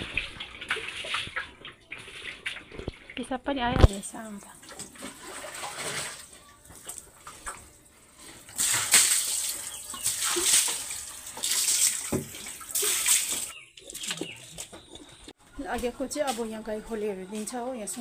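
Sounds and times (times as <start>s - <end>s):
water splashing on concrete: 0.0s - 7.6s, 8.5s - 14.4s.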